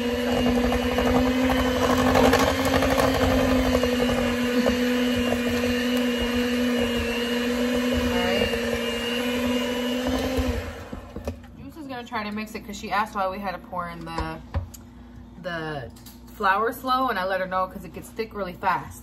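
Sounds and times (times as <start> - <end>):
electric mixer running: 0.0 - 11.5.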